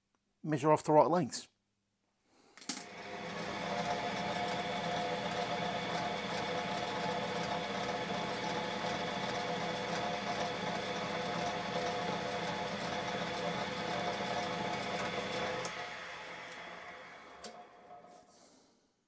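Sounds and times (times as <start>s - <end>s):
metal lathe running: 2.8s - 18.1s.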